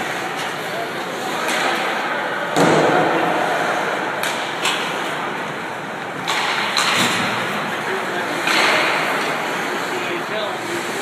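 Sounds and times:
loud bang echoing in arena: 2.5 - 4.5
stick or puck clacks: 4.2 - 5.0, 6.1 - 7.4, 8.4 - 9.4.

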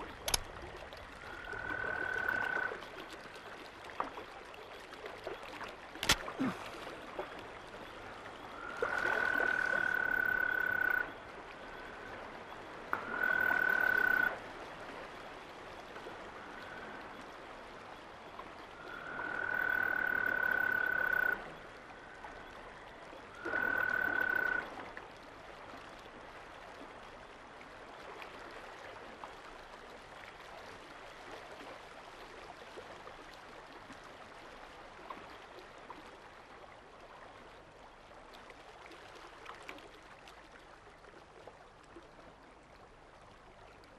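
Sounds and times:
frog trilling: 1.4 - 2.7, 8.6 - 11.1, 13.0 - 14.4, 18.8 - 21.5, 23.4 - 24.7.

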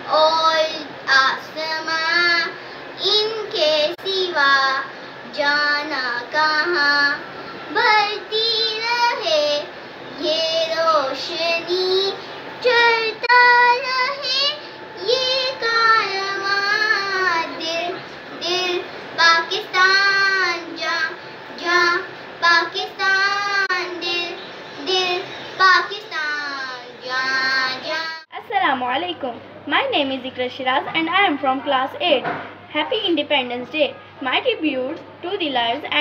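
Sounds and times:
girl singing unaccompanied: 0.0 - 28.3.

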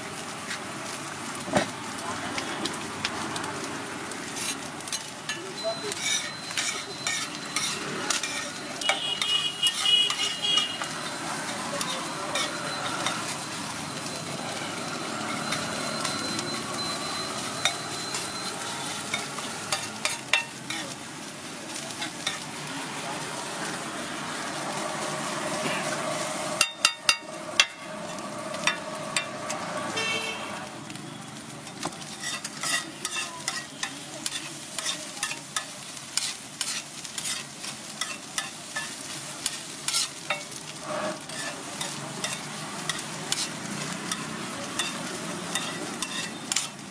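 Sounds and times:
egg sizzling on a griddle: 0.0 - 46.9
metal spatula scraping and tapping pan: 4.3 - 13.4, 17.5 - 18.2, 19.0 - 21.0, 22.0 - 22.5, 26.6 - 30.4, 31.6 - 46.9.

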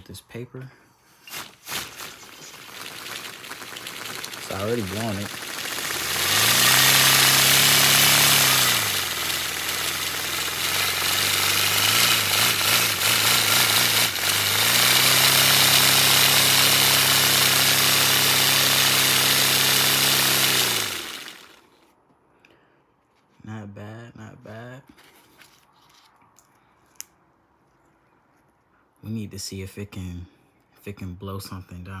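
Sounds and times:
air hissing through model engine: 1.2 - 21.7.

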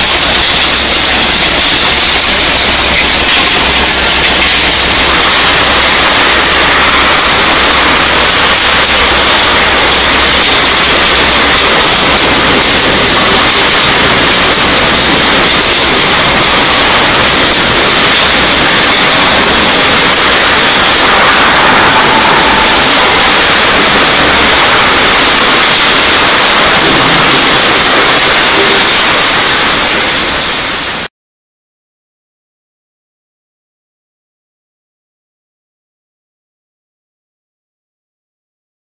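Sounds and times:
water pouring over rotating drum: 0.0 - 31.0
machinery running: 0.0 - 31.1.

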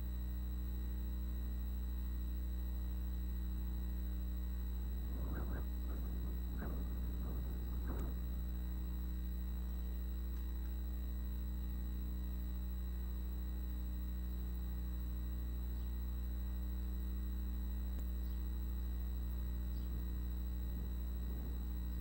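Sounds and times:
low electrical hum: 0.0 - 22.0
high-pitched whine: 3.9 - 11.5
faint ticks: 5.0 - 11.1.

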